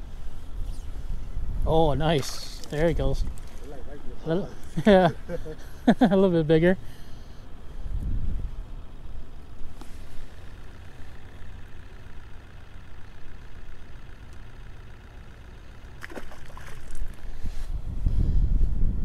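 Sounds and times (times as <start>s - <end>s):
wind buffeting microphone: 7.8s - 8.7s, 16.8s - 19.0s.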